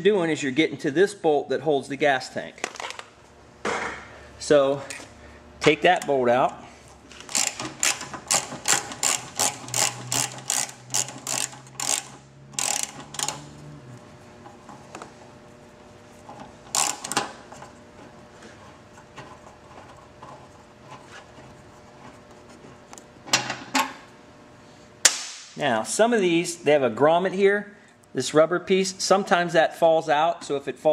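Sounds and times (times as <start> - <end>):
socket ratchet clicking: 7.2 - 13.5, 16.7 - 17.3.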